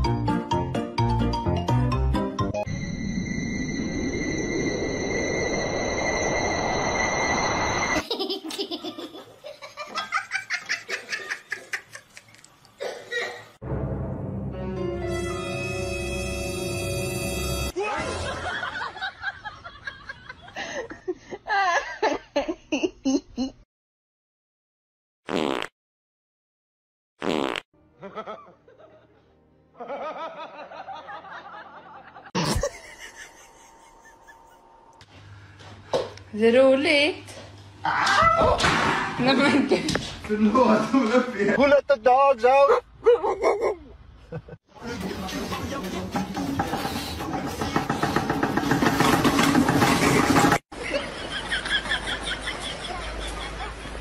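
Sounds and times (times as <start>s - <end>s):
music: 0.0s - 2.7s, 13.6s - 17.8s, 27.8s - 29.9s, 44.8s - 47.9s
dense noise with high tones: 2.6s - 8.0s
person laughing hard: 29.8s - 34.8s
person laughing: 32.2s - 34.8s, 43.0s - 44.6s.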